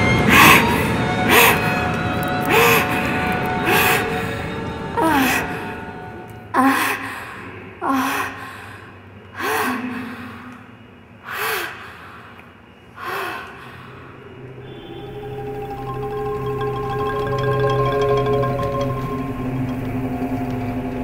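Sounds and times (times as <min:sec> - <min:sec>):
sustained musical tones: 0:14.4 - 0:21.0.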